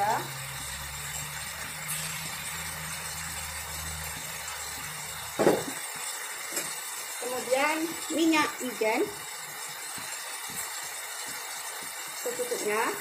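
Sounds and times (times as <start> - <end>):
glass bottle clinking on counter: 5.4 - 5.8.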